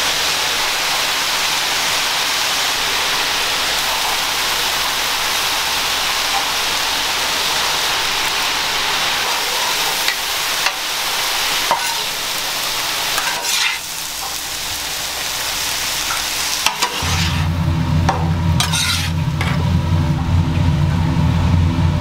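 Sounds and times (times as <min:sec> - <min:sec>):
onions sizzling on a griddle: 0:00.0 - 0:20.1
metal spatulas scraping and clacking: 0:11.7 - 0:12.1, 0:13.2 - 0:14.4, 0:16.1 - 0:17.5, 0:18.6 - 0:19.6
steady low hum: 0:17.0 - 0:22.0.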